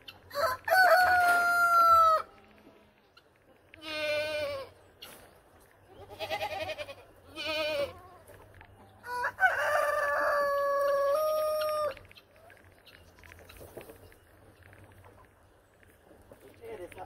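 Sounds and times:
rooster crowing: 0.3 - 2.3, 9.0 - 12.0
goat bleating: 3.8 - 4.8, 5.9 - 8.2.

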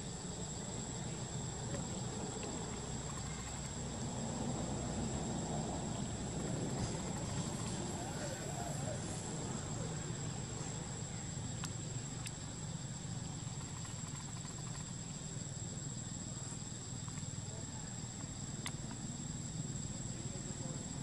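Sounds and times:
faint clicks: 18.6 - 19.0.

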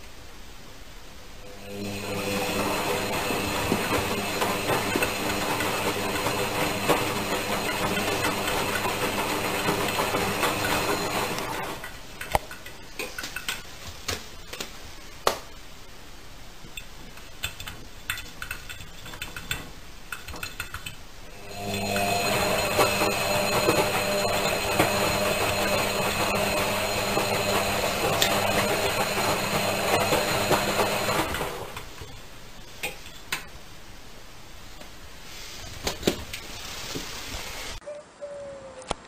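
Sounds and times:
washing machine running: 1.4 - 12.2, 18.4 - 32.1.

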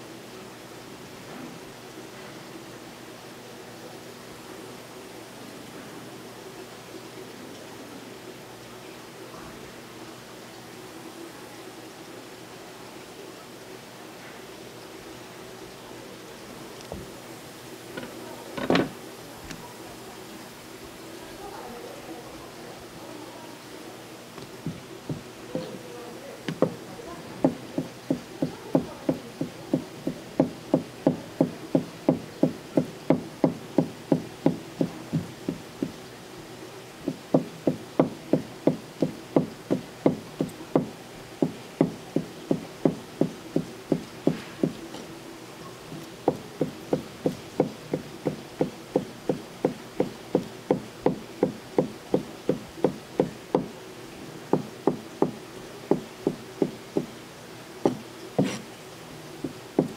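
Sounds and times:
knife striking wooden cutting board: 57.9 - 58.6.

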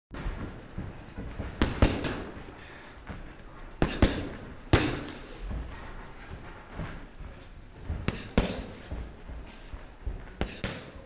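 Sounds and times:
boxing glove punches: 1.2 - 2.4, 3.8 - 5.2, 8.0 - 9.0, 10.3 - 11.0.

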